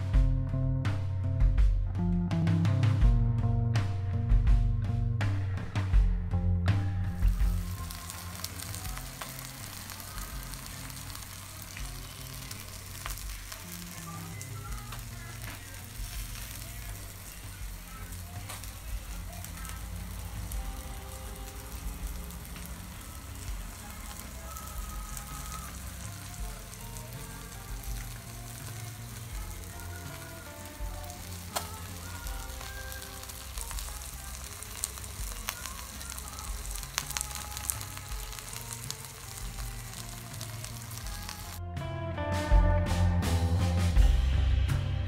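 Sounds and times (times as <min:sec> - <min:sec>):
crackling pops: 0:07.2 - 0:41.6
fish sizzling on a grill: 0:07.2 - 0:41.6.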